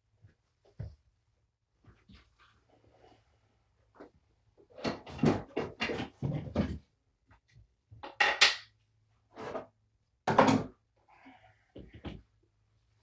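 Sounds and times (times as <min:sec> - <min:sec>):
hard objects knocking and clattering: 0:04.8 - 0:07.0, 0:08.0 - 0:08.7, 0:10.2 - 0:10.8.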